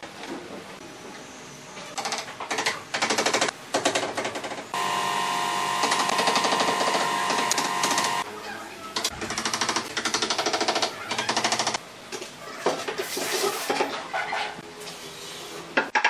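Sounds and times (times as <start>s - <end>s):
steady whine with rattle: 4.8s - 8.3s.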